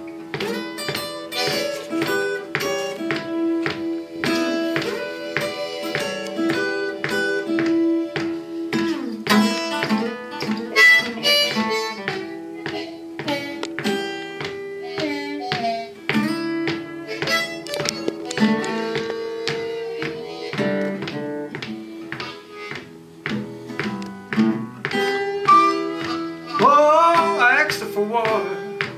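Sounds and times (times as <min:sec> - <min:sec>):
fingerpicked acoustic guitar: 0:00.0 - 0:28.9
harmonica long notes: 0:00.0 - 0:28.9.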